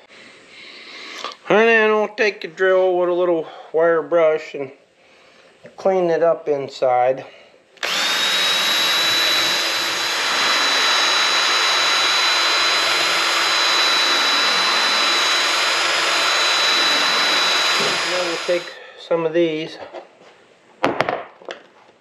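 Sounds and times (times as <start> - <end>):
cordless drill whining: 7.8 - 18.8
wire brush scrubbing metal: 10.1 - 18.7.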